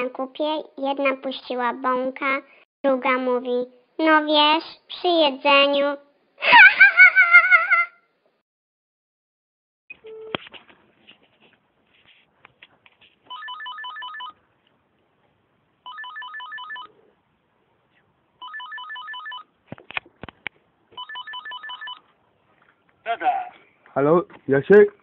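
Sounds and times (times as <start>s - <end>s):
electronic telephone ringer trilling: 13.3s - 14.4s, 15.8s - 16.9s, 18.4s - 19.5s, 21.0s - 22.0s.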